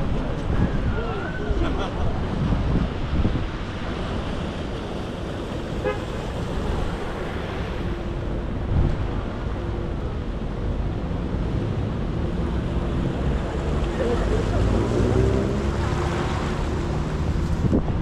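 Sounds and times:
boat engine passing: 0:00.0 - 0:18.0
city traffic rumble: 0:00.0 - 0:18.0
horn toot: 0:05.8 - 0:06.2.

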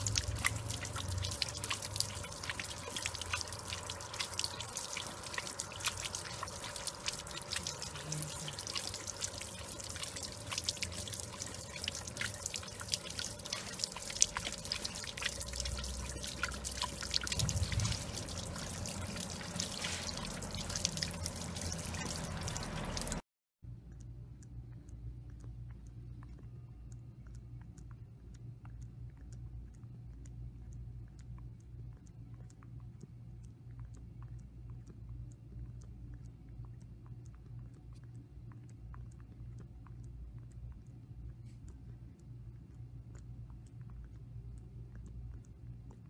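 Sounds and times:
dog lapping water: 0:00.0 - 0:23.2
fountain water splashing: 0:00.0 - 0:23.2.

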